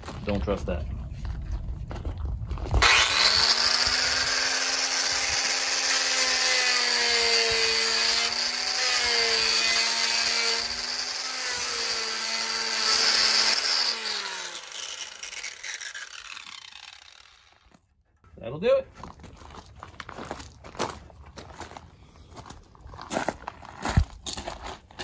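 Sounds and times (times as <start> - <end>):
power tool grinding: 2.8 - 17.8.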